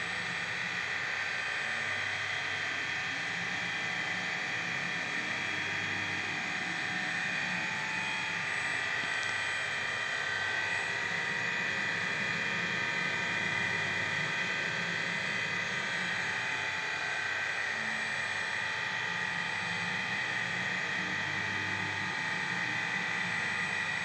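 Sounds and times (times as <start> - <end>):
machining spindle whine: 0.0 - 24.0.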